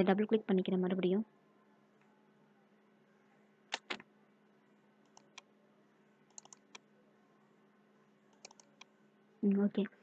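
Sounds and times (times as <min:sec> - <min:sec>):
faint steady hum: 0:00.0 - 0:10.0
computer mouse clicking: 0:05.0 - 0:05.5, 0:06.3 - 0:06.8, 0:08.3 - 0:08.9.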